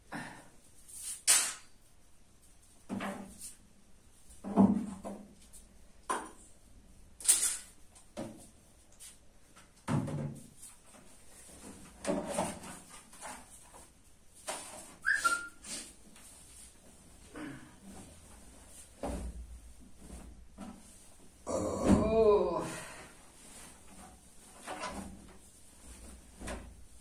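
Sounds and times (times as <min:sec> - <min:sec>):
short high squeak: 0:15.0 - 0:15.6.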